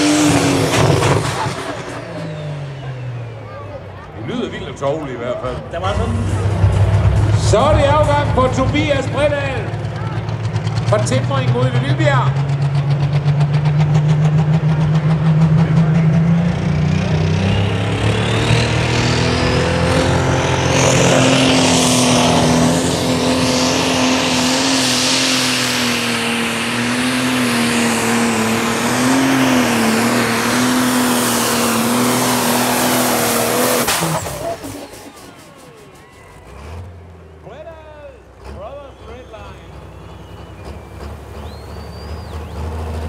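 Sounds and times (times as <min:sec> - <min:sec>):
tractor engine under full load: 0:00.0 - 0:43.0
turbo whistle: 0:38.8 - 0:42.7.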